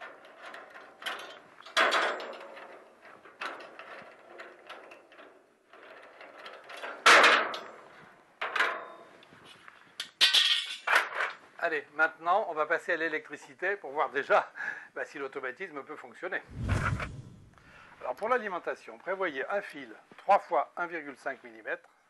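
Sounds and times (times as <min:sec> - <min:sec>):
metal clanks and rattles: 0:00.0 - 0:07.8, 0:10.1 - 0:11.4.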